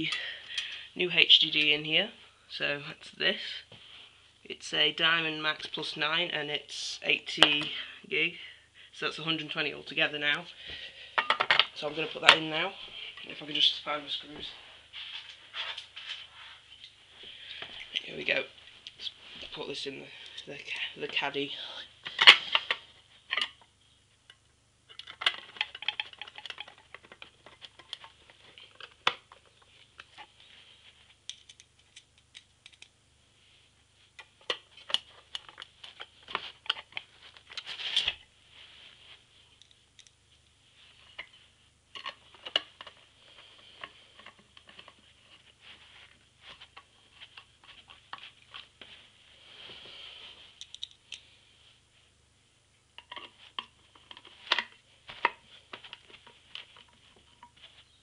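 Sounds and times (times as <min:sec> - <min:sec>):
hard drives clicking and knocking: 0:25.0 - 0:29.6.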